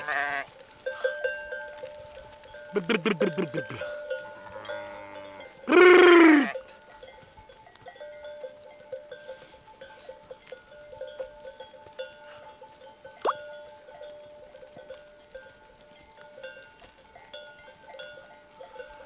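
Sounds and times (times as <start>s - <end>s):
sheep bleating: 0.0s - 0.5s, 2.8s - 6.6s
sheep bells clinking: 0.0s - 19.0s.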